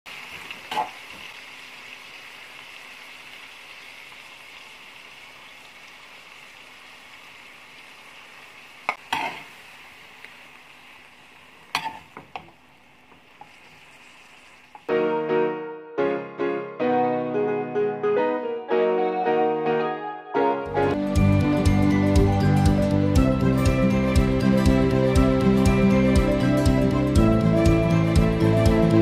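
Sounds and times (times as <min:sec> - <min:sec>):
food sizzling in a wok: 0:00.1 - 0:14.9
metal spatula scraping wok: 0:09.0 - 0:09.5, 0:11.7 - 0:12.2.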